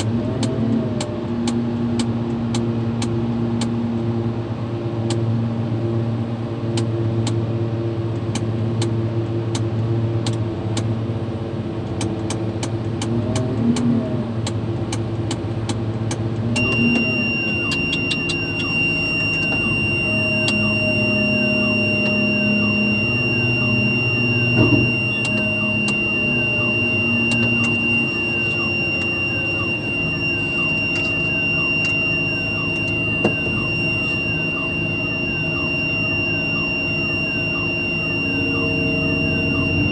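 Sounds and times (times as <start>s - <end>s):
crane diesel engine running: 14.1s - 39.9s
high-pitched buzzer tone: 16.6s - 39.9s.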